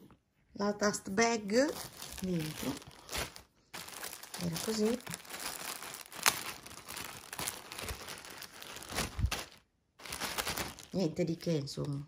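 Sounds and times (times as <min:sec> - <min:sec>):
plastic bag crinkling: 0:01.5 - 0:12.0.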